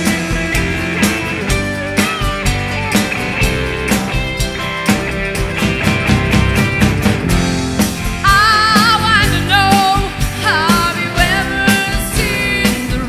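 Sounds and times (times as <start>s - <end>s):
live rock band playing: 0.0s - 13.0s
wavering lead melody: 4.8s - 9.4s.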